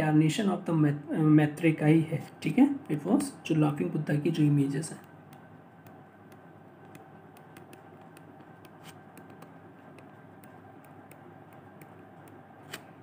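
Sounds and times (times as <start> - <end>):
low steady hum: 0.0 - 13.0
stylus tapping on tablet screen: 5.0 - 13.0.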